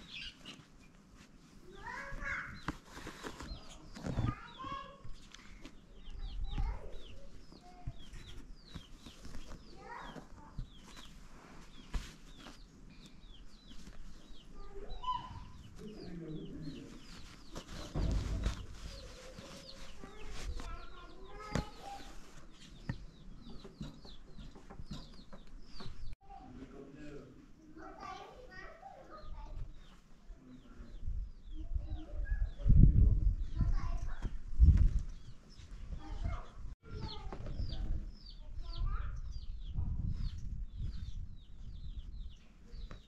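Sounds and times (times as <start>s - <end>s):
low muffled thump: 17.9s - 18.8s.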